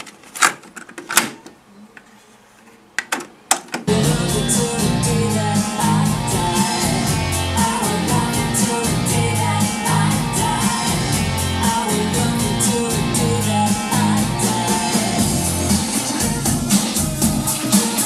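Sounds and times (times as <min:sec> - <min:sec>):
song with singing and guitar: 0:03.9 - 0:18.0.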